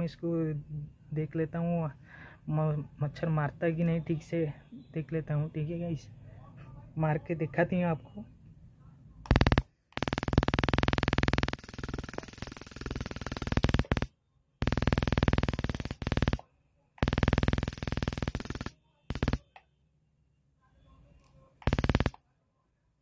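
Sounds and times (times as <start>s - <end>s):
electric mosquito racket zapping: 9.3s - 16.4s, 17.0s - 19.5s, 21.6s - 22.2s.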